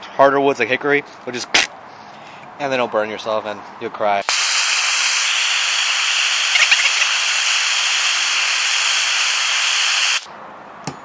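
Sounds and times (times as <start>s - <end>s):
hand torch flame hissing: 4.2s - 10.3s.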